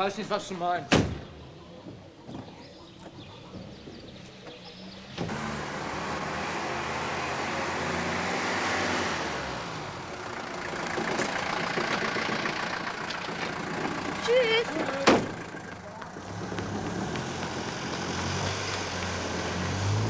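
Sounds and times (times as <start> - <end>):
car passing by: 5.0 - 10.3, 14.7 - 20.0.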